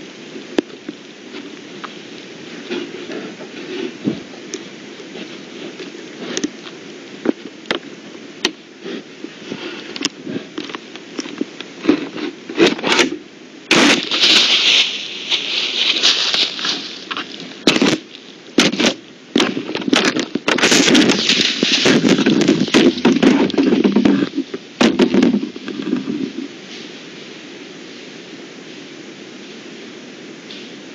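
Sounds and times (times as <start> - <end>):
loud scraping and rustling: 1.3 - 7.4, 11.7 - 28.2.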